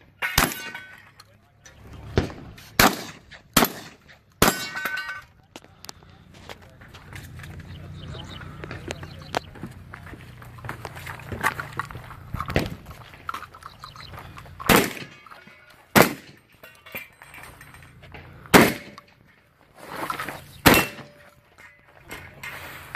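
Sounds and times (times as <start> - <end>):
shotgun shots: 0.2 - 0.8, 2.1 - 4.8, 14.6 - 16.5, 18.5 - 19.1, 20.6 - 21.2.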